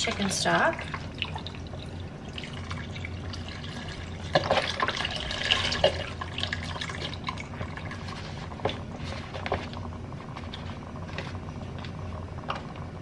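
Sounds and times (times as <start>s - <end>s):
broth pouring into a pot: 0.1s - 9.4s.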